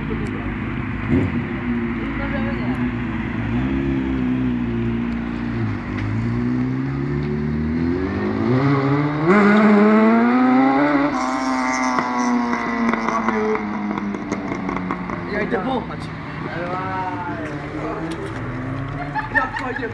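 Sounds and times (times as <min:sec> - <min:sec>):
motorcycle accelerating through gears: 0:01.0 - 0:15.6.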